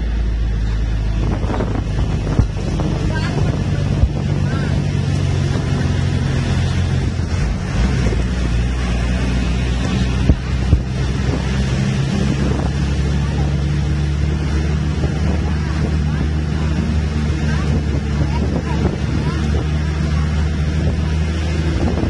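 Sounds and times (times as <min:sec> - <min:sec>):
bus engine running: 0:00.0 - 0:22.0
wind buffeting microphone: 0:00.0 - 0:22.0.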